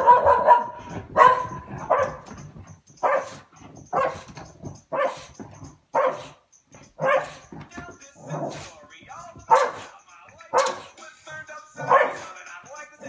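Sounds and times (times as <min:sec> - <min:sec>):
dog barking: 0:00.0 - 0:02.4, 0:03.0 - 0:04.3, 0:04.9 - 0:06.4, 0:07.0 - 0:07.5, 0:09.5 - 0:09.9, 0:10.5 - 0:11.0, 0:11.8 - 0:12.3.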